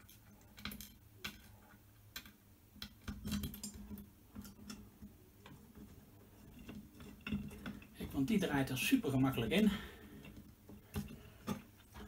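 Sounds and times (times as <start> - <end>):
metal bolts and washers clinking: 0.0 - 8.3.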